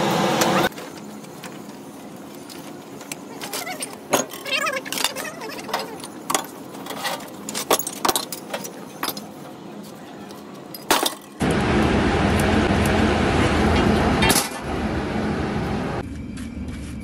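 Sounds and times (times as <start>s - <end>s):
metal tools clinking: 2.4s - 9.5s, 10.3s - 11.4s
loud machine running: 11.4s - 16.7s.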